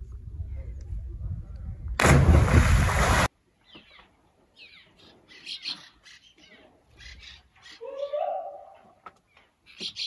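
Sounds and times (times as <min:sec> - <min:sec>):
loud splash into water: 0:02.0 - 0:03.3.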